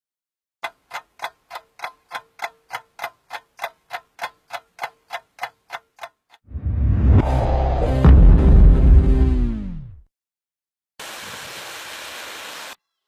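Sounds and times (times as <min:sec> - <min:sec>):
clock ticking: 0:00.6 - 0:06.4
music with heavy bass: 0:07.1 - 0:10.0.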